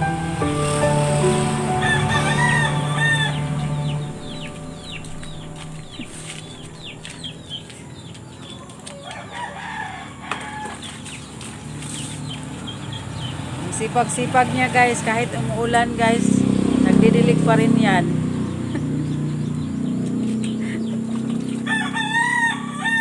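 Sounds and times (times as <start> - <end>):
rooster crowing: 1.4 - 5.0, 8.9 - 10.8, 21.6 - 23.0
chicks peeping: 1.8 - 9.8, 10.4 - 13.6, 18.1 - 23.0
chickens clucking: 1.8 - 13.5.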